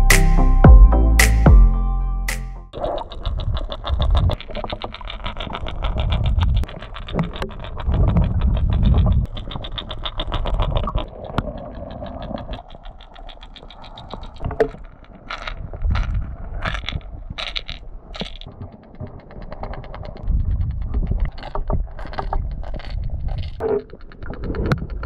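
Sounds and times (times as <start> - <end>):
rapid underwater clicking: 2.8 - 25.0.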